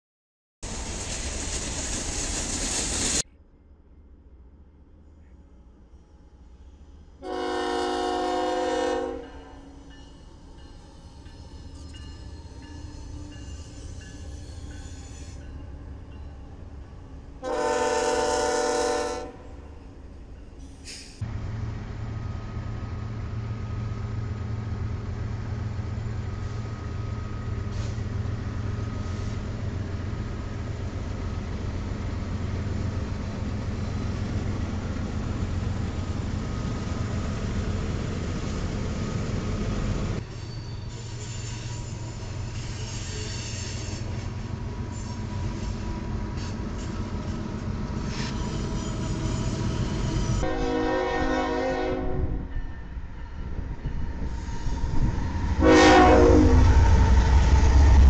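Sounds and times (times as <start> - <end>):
freight train rumbling: 0.6 - 58.0
locomotive horn blast: 7.2 - 9.8, 17.4 - 19.6, 50.4 - 52.4, 55.6 - 56.8.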